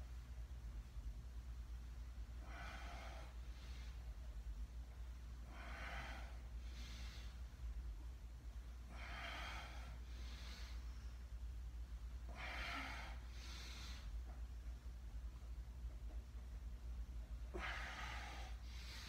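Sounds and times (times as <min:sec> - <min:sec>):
steady low hum: 0:00.0 - 0:19.0
man breathing: 0:02.3 - 0:04.4, 0:05.3 - 0:07.8, 0:08.7 - 0:14.8, 0:17.2 - 0:19.0.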